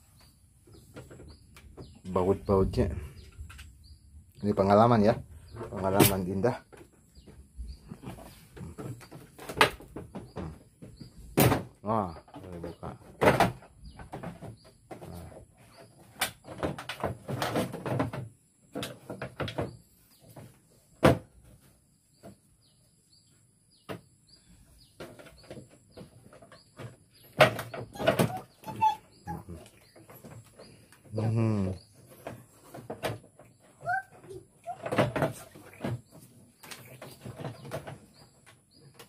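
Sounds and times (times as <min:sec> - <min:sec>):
plastic panels knocking and rattling: 0:00.7 - 0:03.7, 0:04.4 - 0:22.5, 0:24.8 - 0:29.0, 0:32.0 - 0:39.0.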